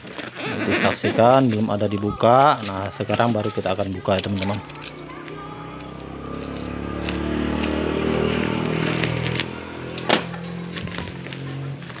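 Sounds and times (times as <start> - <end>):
passing vehicle engine hum: 4.5 - 12.0.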